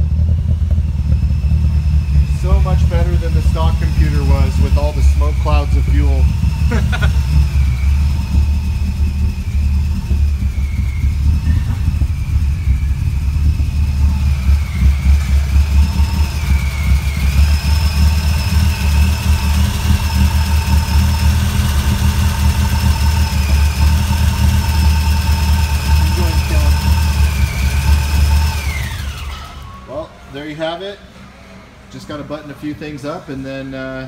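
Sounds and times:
engine idling with deep rumble: 0:00.0 - 0:31.1
high whine: 0:00.0 - 0:32.2.

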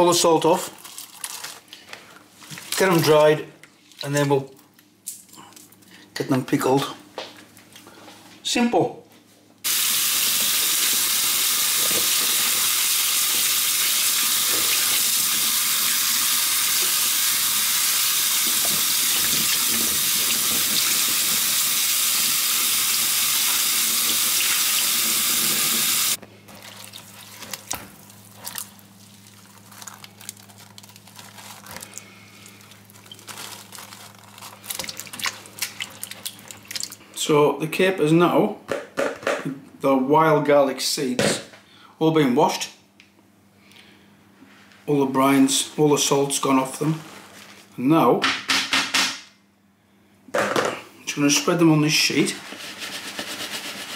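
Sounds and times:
wet clicks and splashes: 0:34.7 - 0:37.0.

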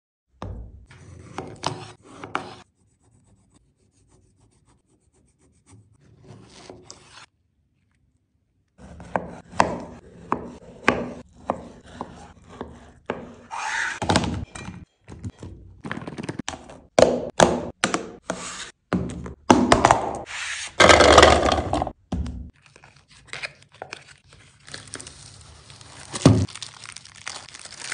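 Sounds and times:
knife slicing melon: 0:08.8 - 0:14.2.

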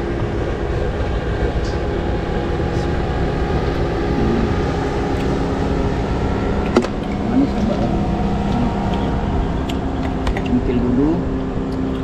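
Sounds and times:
motor drone with held tones: 0:00.0 - 0:12.0.

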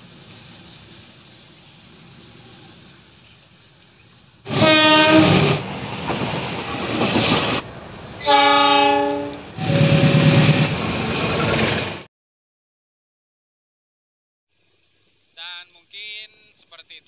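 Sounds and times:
train engine and wheel rumble: 0:00.0 - 0:12.1
locomotive horn blasts: 0:04.5 - 0:05.6, 0:08.2 - 0:10.7.

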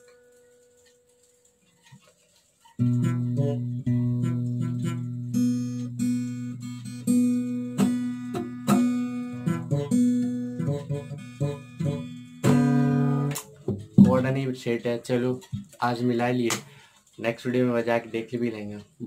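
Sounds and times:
acoustic guitar chords: 0:02.7 - 0:16.9.

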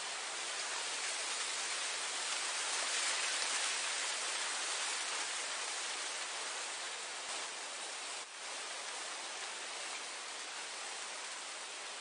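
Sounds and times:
wind blowing through grass: 0:00.0 - 0:12.0.

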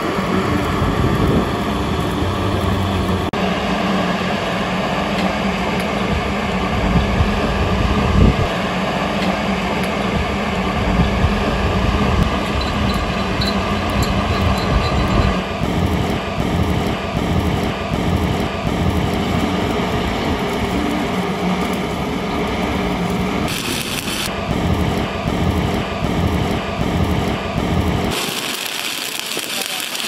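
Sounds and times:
arc welding hissing crackle: 0:00.0 - 0:03.3, 0:12.2 - 0:30.0
pulsing low machine rumble: 0:00.0 - 0:08.6, 0:10.0 - 0:28.8.

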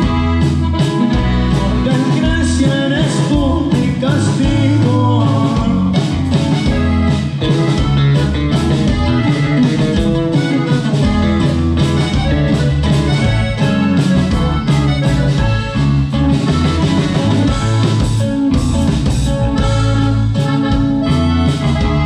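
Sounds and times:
drums steady beat: 0:00.0 - 0:22.0
electric bass: 0:00.0 - 0:22.0
electric guitar: 0:00.0 - 0:22.0
person singing: 0:01.1 - 0:06.8.

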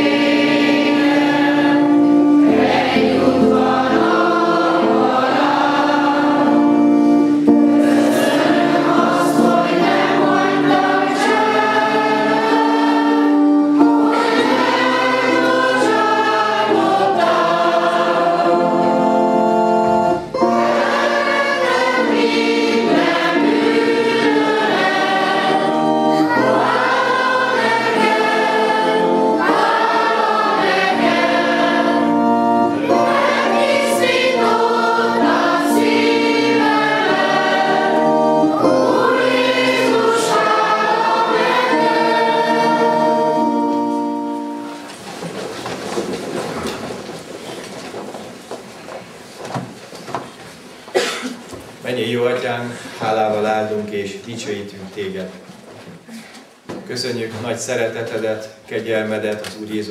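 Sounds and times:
congregation singing a hymn: 0:00.0 - 0:47.1.

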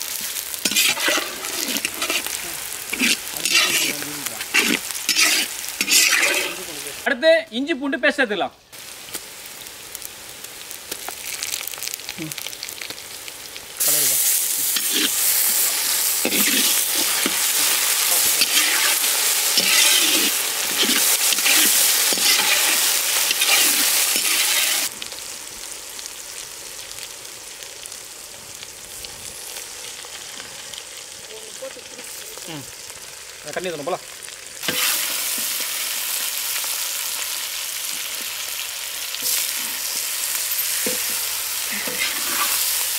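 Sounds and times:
onions sizzling in hot oil: 0:00.0 - 0:07.5, 0:08.6 - 0:42.9
spatula scraping pan: 0:00.6 - 0:06.7, 0:14.7 - 0:15.6, 0:16.2 - 0:24.9, 0:34.6 - 0:35.1, 0:40.5 - 0:42.7.

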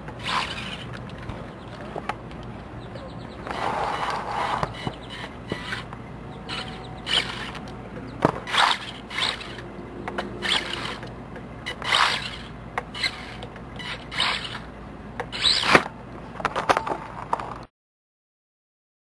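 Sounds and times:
toy truck electric motor whirring: 0:00.2 - 0:01.0, 0:03.4 - 0:07.8, 0:08.4 - 0:14.7, 0:15.3 - 0:15.9.

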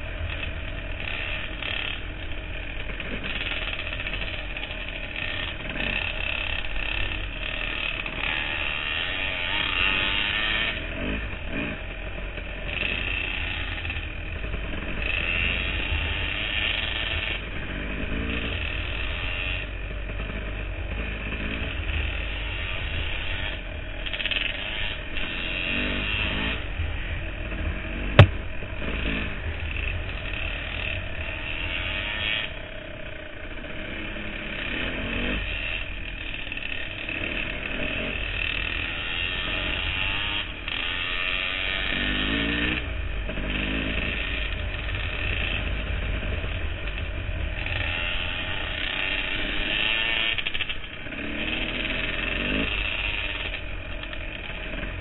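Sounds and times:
dirt bike engine revving: 0:00.0 - 0:55.0
sharp click: 0:28.2 - 0:28.5.

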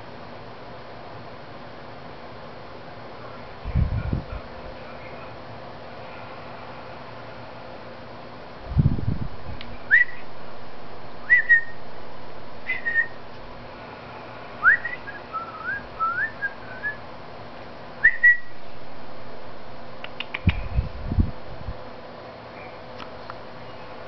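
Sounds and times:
person whistling rising notes: 0:14.6 - 0:17.0.

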